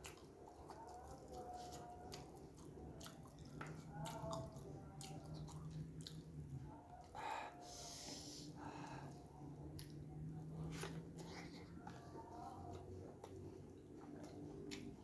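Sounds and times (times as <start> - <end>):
wet chewing sounds: 0.0 - 7.1, 9.2 - 15.0
faint low hum: 0.0 - 15.0
breathy sniff: 7.2 - 9.2.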